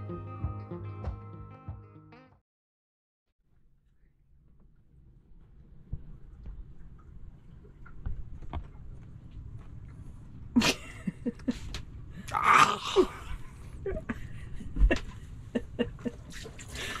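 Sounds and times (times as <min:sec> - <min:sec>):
man's wordless vocal sounds: 0:12.3 - 0:13.4.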